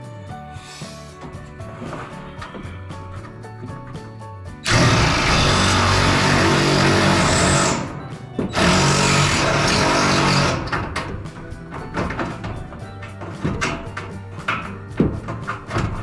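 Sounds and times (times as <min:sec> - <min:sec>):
power shear cutting metal: 0:04.6 - 0:11.1.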